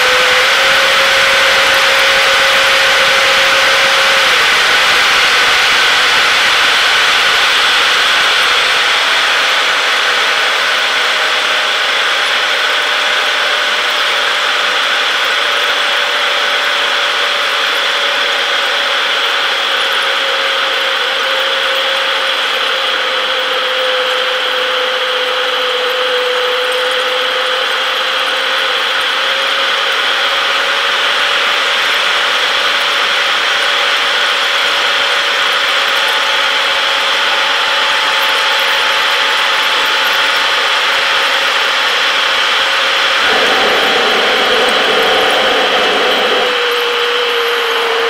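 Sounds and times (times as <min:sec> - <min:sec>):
jet engines whining: 0:42.7 - 0:48.0
rush of airflow: 0:43.2 - 0:47.0.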